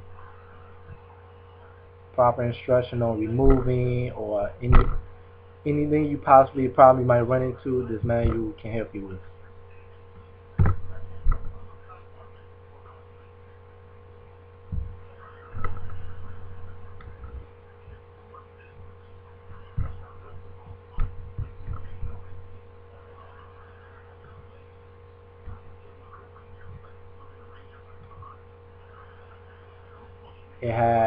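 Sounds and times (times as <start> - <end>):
low electrical hum: 0.0 - 31.0
soft low thumps: 3.4 - 5.2, 9.9 - 12.0, 14.6 - 18.1, 18.7 - 22.8, 24.2 - 28.6.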